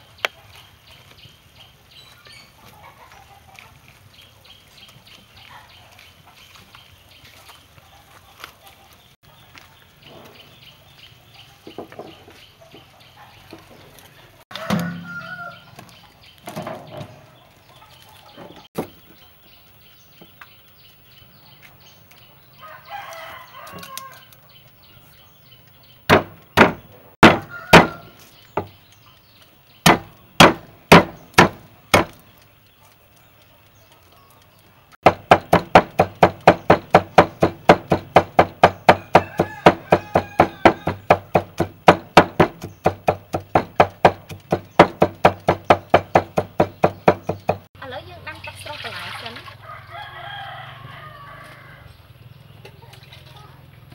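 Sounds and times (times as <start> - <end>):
cleaver chopping on wooden board: 26.1 - 28.7, 29.8 - 32.2, 35.0 - 47.7.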